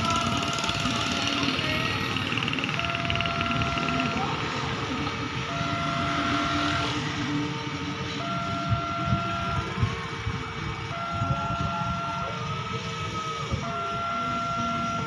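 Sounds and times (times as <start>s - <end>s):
level crossing two-tone alarm: 0.0s - 7.2s, 8.0s - 10.2s, 10.8s - 15.0s
motorcycle: 0.0s - 11.6s
street traffic: 0.0s - 15.0s.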